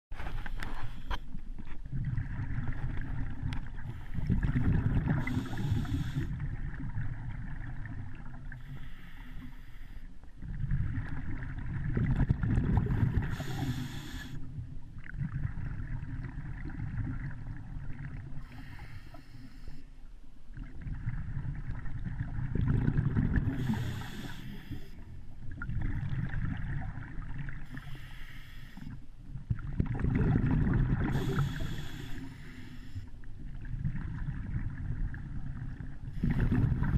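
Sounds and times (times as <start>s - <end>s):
muffled underwater rumble: 0.1s - 36.9s
steady hiss: 5.2s - 6.3s, 13.2s - 14.5s, 18.4s - 19.9s, 23.6s - 25.0s, 27.7s - 29.0s, 31.2s - 33.1s.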